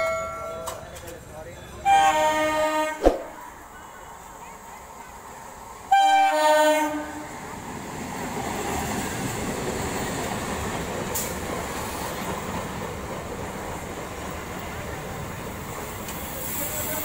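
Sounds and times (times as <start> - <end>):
train horn: 1.8 - 3.0, 5.9 - 7.4
train wheels rumbling on rail: 4.4 - 17.0.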